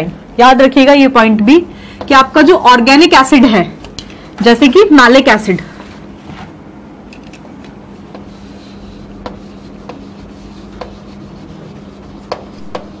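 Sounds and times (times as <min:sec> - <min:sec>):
steady low hum: 0:00.0 - 0:13.0
chalk scratching on chalkboard: 0:07.9 - 0:13.0
chalk tapping board: 0:08.0 - 0:13.0.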